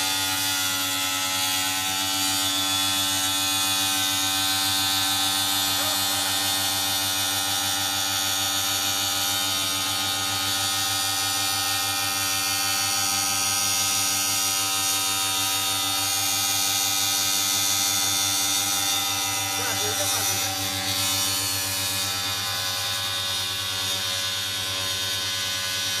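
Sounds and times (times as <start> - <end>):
router spindle whining: 0.0 - 26.0.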